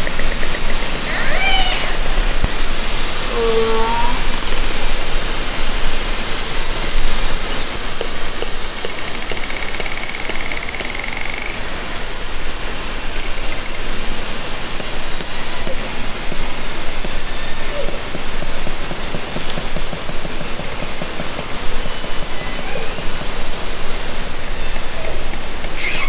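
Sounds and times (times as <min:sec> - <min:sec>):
underwater hiss: 0:00.0 - 0:21.7
faint high rising call: 0:01.1 - 0:02.2, 0:03.2 - 0:04.4
pitch-bending orca call: 0:01.1 - 0:02.2, 0:03.2 - 0:04.4.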